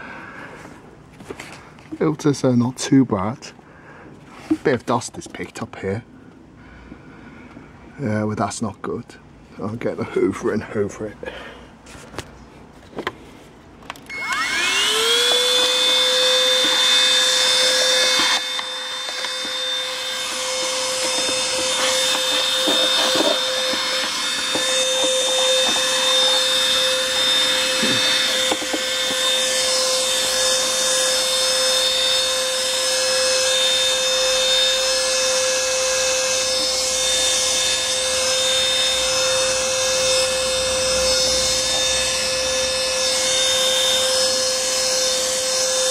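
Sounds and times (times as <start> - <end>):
vacuum cleaner motor whine: 13.9 - 45.9.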